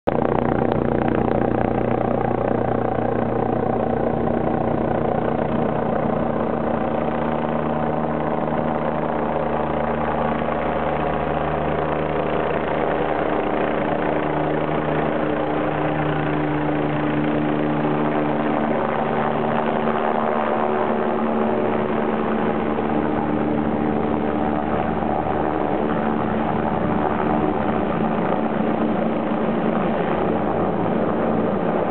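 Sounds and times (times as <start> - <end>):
helicopter rotor and engine drone: 0.0 - 31.9.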